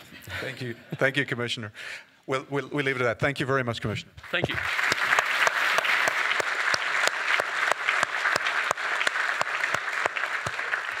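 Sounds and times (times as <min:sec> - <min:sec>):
audience applause: 0:04.4 - 0:11.0
nearby person clapping: 0:04.4 - 0:11.0.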